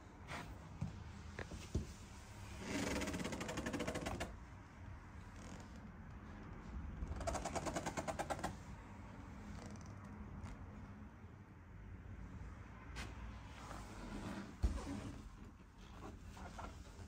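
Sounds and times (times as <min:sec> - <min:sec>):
faint room noise: 0:00.0 - 0:17.0
rapid mechanical clicking: 0:02.7 - 0:04.5, 0:07.0 - 0:08.8.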